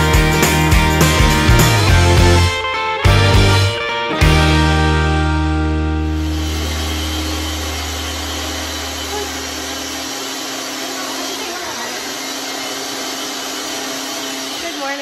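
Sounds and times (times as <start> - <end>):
low sustained music note: 5.1 - 10.0
blender running: 5.7 - 15.0.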